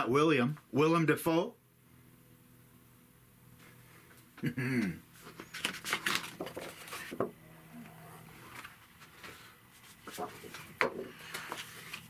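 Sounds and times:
paper rustling: 0:05.2 - 0:07.3, 0:08.4 - 0:12.0.

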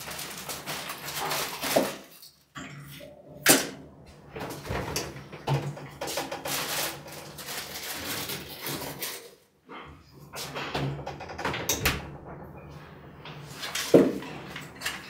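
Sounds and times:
rustling: 0:00.0 - 0:02.3, 0:06.2 - 0:09.3.

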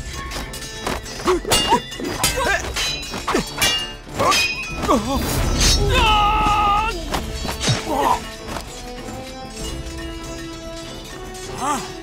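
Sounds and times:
background music: 0:00.0 - 0:12.0
metal blades clashing: 0:00.0 - 0:12.0
men shouting and grunting: 0:01.2 - 0:08.5, 0:11.4 - 0:12.0.

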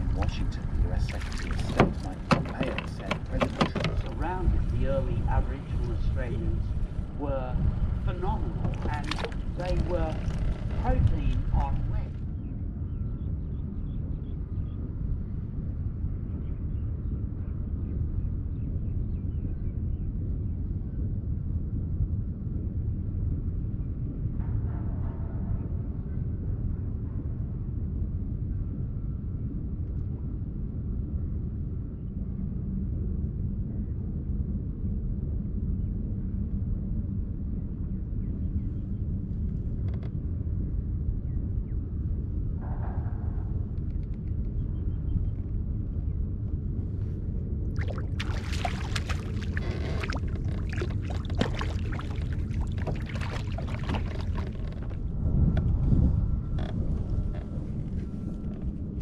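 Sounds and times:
low rumble: 0:00.0 - 0:59.0
wind buffeting microphone: 0:00.0 - 0:59.0
fish thrashing and splashing: 0:01.1 - 0:04.2, 0:08.7 - 0:10.7, 0:47.8 - 0:55.0.

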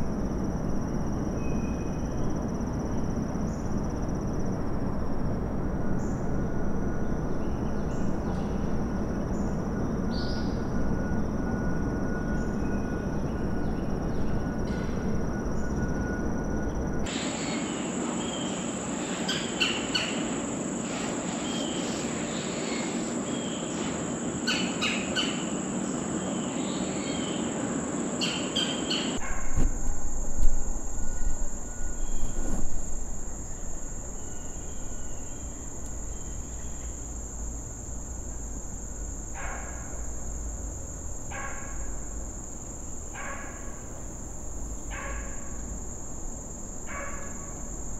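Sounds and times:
insects droning: 0:00.0 - 0:47.9.

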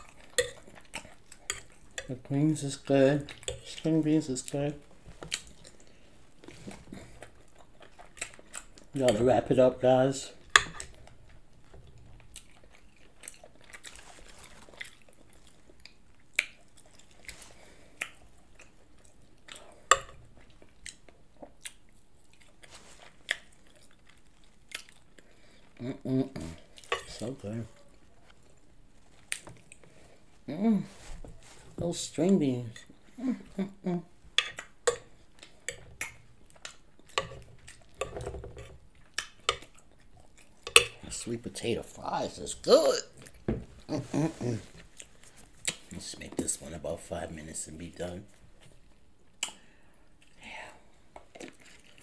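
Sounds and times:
person chewing and biting: 0:12.1 - 0:25.7
sharp mouth clicks and smacks: 0:45.0 - 0:45.9, 0:49.4 - 0:49.6.

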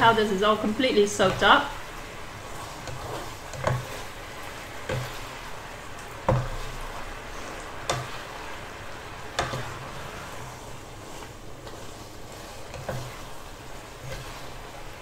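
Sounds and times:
noodles sizzling in a wok: 0:00.0 - 0:15.0
spatula knocking against pan: 0:06.3 - 0:06.6.

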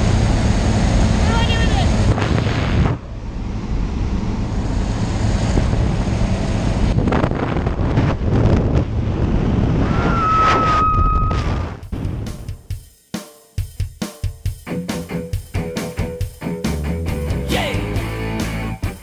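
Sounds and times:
wind buffeting microphone: 0:01.9 - 0:12.2.

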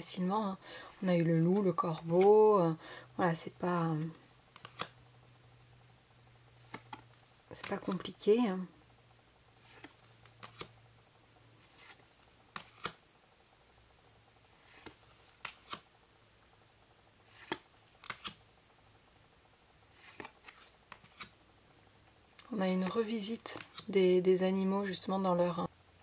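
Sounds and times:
cards clicking and sliding: 0:04.0 - 0:05.0, 0:06.6 - 0:08.2, 0:09.6 - 0:10.8, 0:11.6 - 0:13.0, 0:14.6 - 0:15.9, 0:17.3 - 0:18.4, 0:19.9 - 0:21.4, 0:22.8 - 0:23.9.

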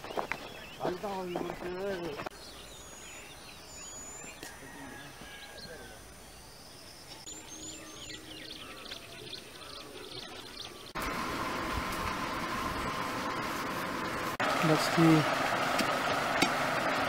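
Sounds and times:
birds chirping: 0:00.0 - 0:17.0
outdoor rushing noise: 0:10.9 - 0:17.0.

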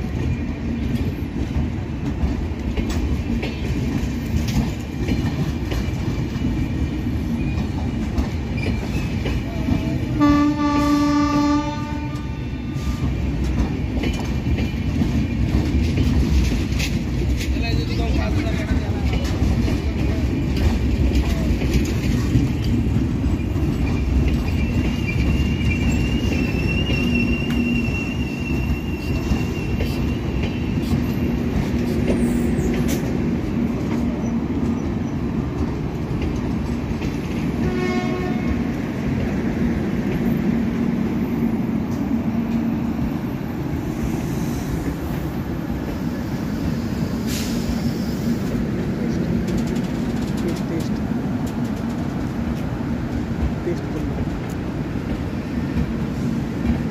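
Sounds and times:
train wheels rumbling on rails: 0:00.0 - 0:56.9
wheel squeal: 0:23.8 - 0:31.4.

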